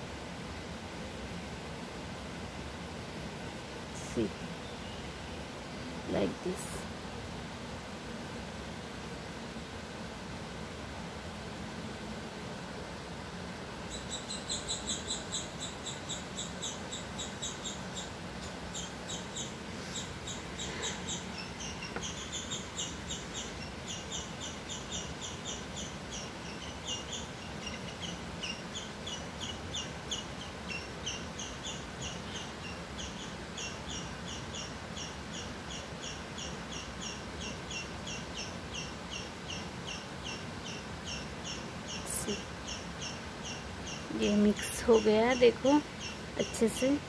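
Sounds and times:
small animal chirping: 13.9 - 47.0.

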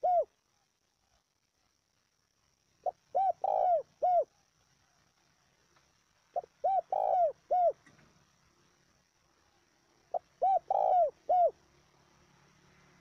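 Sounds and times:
dove cooing: 0.0 - 0.4, 2.8 - 4.4, 6.3 - 7.9, 10.1 - 11.6.

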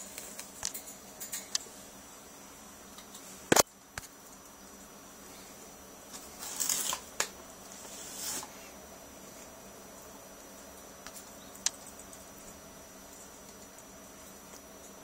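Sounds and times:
beak clicks: 11.0 - 12.2.

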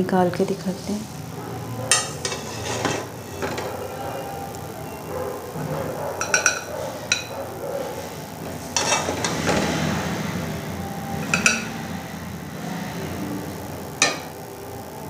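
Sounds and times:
spoon scraping: 1.9 - 4.1, 6.2 - 9.7, 11.2 - 11.8
metal spoon clinking on glass and steel: 6.2 - 7.3.

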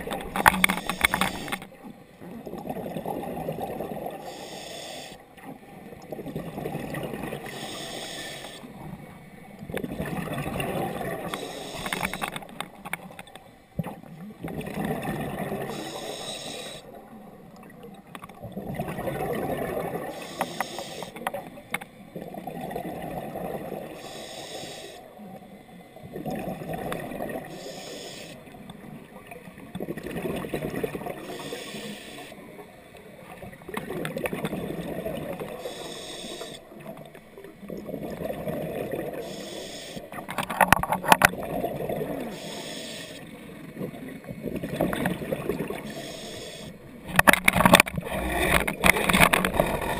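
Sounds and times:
exhaled bubbles rumbling: 0.0 - 4.2, 5.5 - 7.5, 8.8 - 11.4, 13.8 - 15.8, 16.9 - 20.2, 21.3 - 24.0, 25.9 - 27.5, 28.6 - 31.2, 33.2 - 35.6, 36.7 - 39.3, 40.1 - 42.3, 43.4 - 45.9, 47.1 - 49.9
regulator inhale hiss: 0.5 - 1.6, 4.2 - 5.2, 7.4 - 8.8, 11.2 - 12.4, 15.6 - 16.9, 20.1 - 21.2, 23.8 - 25.2, 27.4 - 28.6, 31.1 - 32.5, 35.4 - 36.7, 39.1 - 40.2, 42.2 - 43.4, 45.8 - 46.9.

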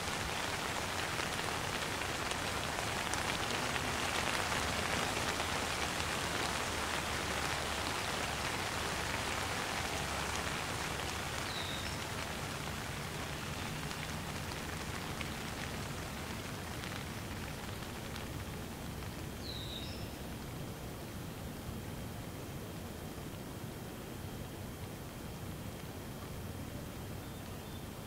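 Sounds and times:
raindrop ticks: 0.0 - 20.5
light rain hissing: 0.0 - 28.0.

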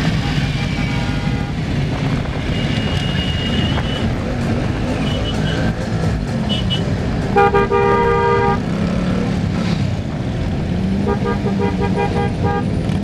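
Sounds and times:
street noise: 0.0 - 13.0
vehicle horn honking: 2.4 - 4.1, 6.5 - 8.6, 11.0 - 12.7.

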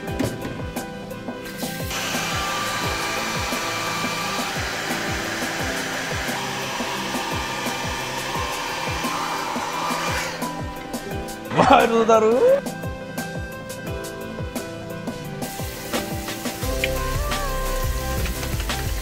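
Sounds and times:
background music with beat: 0.0 - 19.0
hair dryer blowing: 1.5 - 11.4, 15.4 - 19.0.

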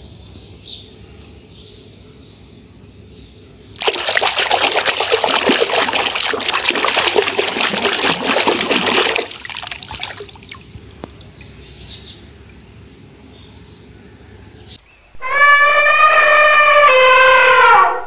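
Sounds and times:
water splashing into plastic basin: 3.8 - 11.7
water trickling and dripping: 3.8 - 12.6.

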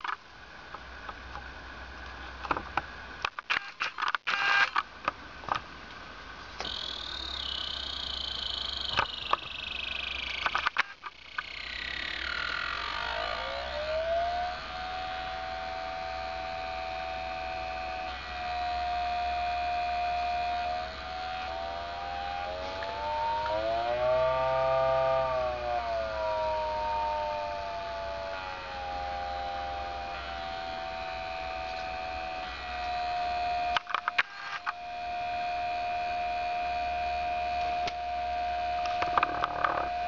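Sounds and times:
sharp clicks: 6.6 - 13.8, 33.7 - 34.8
motor whining: 6.6 - 40.0.

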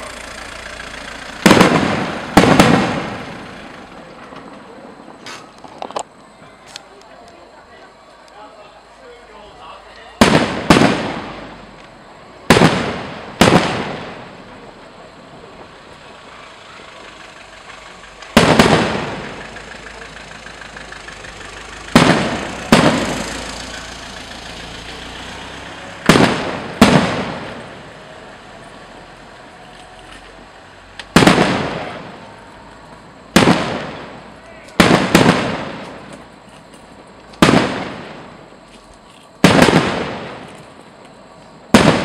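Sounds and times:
firework shells bursting: 1.2 - 6.1, 12.5 - 14.5, 17.9 - 20.5, 21.8 - 23.8, 25.8 - 27.9, 30.9 - 32.3, 32.9 - 41.0.

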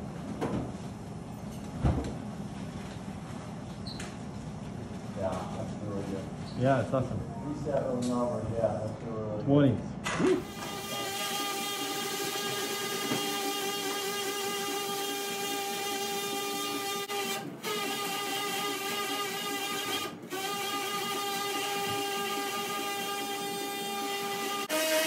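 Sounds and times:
surgical saw whining: 10.4 - 25.0.

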